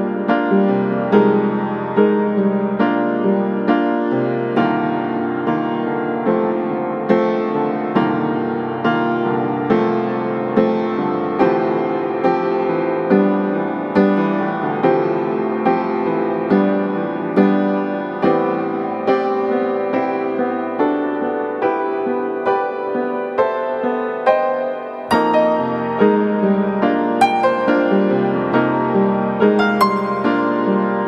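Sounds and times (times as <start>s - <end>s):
piano music: 0.0s - 31.0s.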